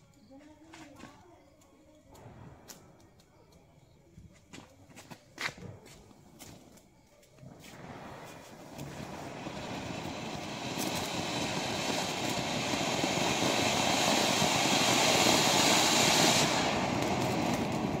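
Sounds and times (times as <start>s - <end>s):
fountain firework hissing: 7.5s - 18.0s.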